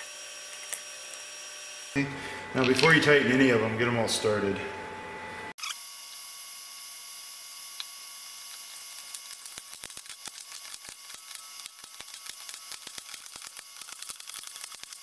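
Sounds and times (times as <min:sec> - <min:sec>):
ratchet wrench clicking: 0:08.7 - 0:15.0.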